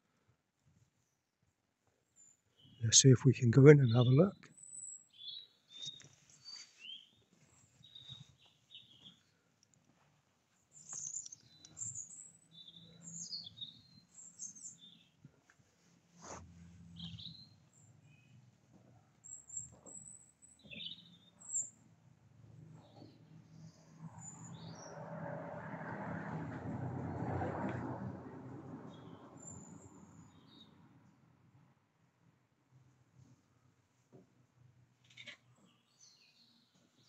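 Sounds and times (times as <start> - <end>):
small birds chirping: 2.2 - 2.9, 3.8 - 9.4, 10.7 - 15.2, 16.9 - 18.4, 19.2 - 21.8.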